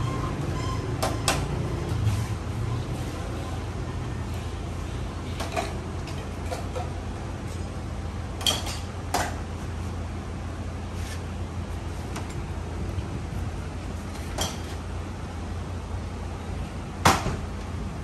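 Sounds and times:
steady low hum: 1.5s - 18.0s.

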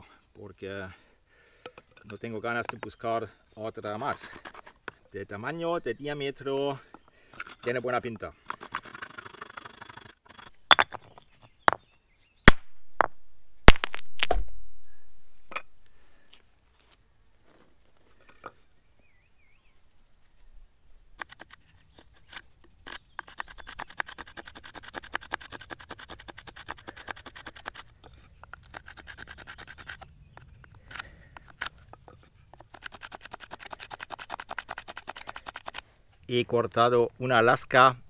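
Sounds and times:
stone scraping across wood: 3.9s - 5.2s, 6.7s - 11.9s, 21.2s - 35.8s.

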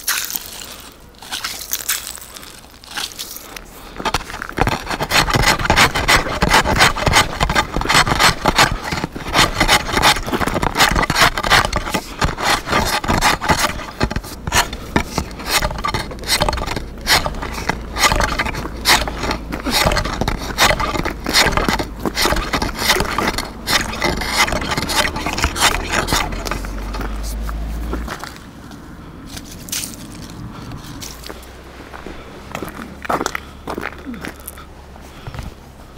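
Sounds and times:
ice chisel chopping ice: 4.0s - 27.2s.

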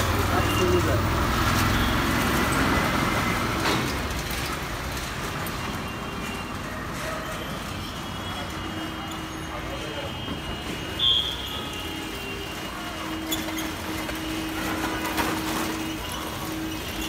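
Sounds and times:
street traffic noise: 0.0s - 17.0s.

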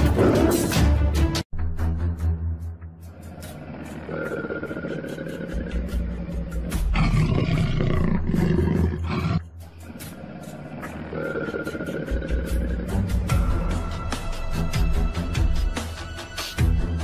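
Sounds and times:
loud animal roar: 3.4s - 9.4s, 10.2s - 13.4s.

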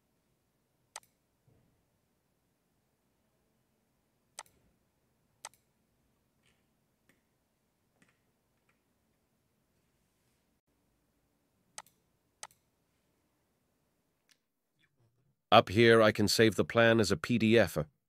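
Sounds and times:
computer mouse clicks: 0.9s - 1.2s, 4.4s - 4.6s, 5.4s - 5.7s, 11.8s - 12.7s.

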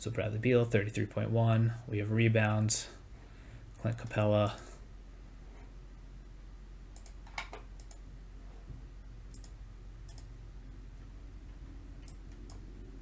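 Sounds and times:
low electrical hum: 0.0s - 13.0s
computer mouse clicks: 7.0s - 8.0s, 9.3s - 10.3s, 12.0s - 12.7s.

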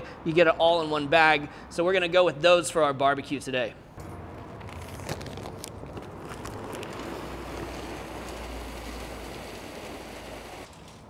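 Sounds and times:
wood pellets pouring into hopper: 6.3s - 10.8s.

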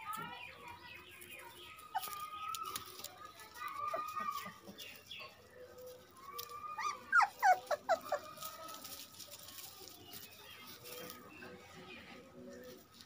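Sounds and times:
puppies whining: 1.8s - 4.7s, 6.2s - 9.0s.

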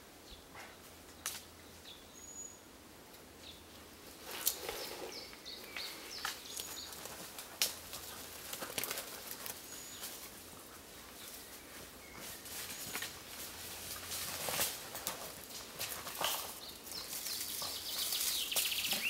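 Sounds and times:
person climbing a tree trunk: 11.6s - 19.0s.

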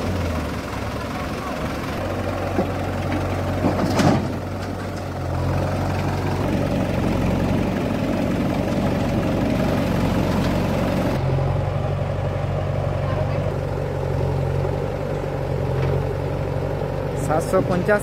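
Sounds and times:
backhoe loader engine running: 0.0s - 18.0s
tractor diesel engine idling: 0.0s - 18.0s.

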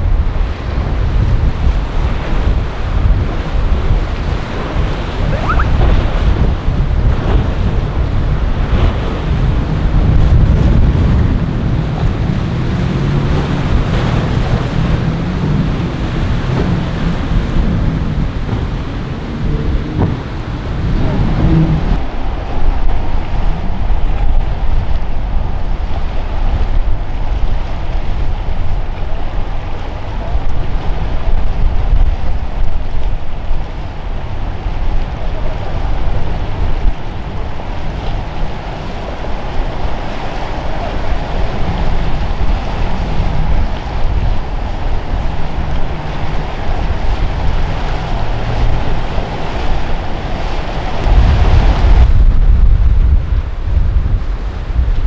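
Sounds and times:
boat engine noise: 0.0s - 55.0s
waves rushing: 0.0s - 55.0s
wind buffeting microphone: 0.0s - 55.0s.

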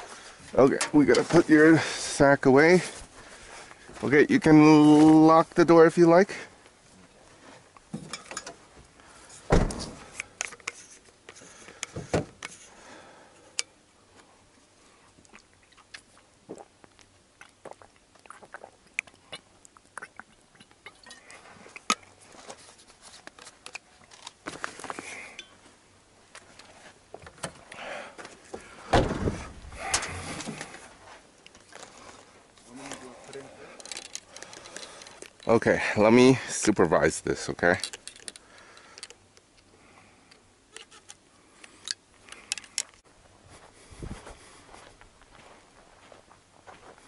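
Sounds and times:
heavy thuds: 28.8s - 30.7s
gear clicks knocks and rattles: 37.7s - 39.2s.

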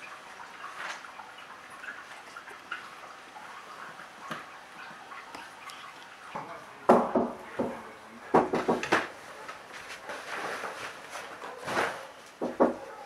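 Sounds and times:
knocks on wooden door: 6.9s - 9.1s, 12.4s - 12.8s.

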